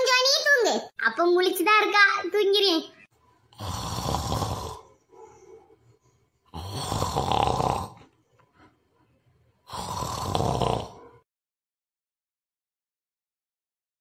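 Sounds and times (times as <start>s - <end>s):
person snoring: 3.5s - 5.0s, 6.4s - 8.1s, 9.6s - 11.2s.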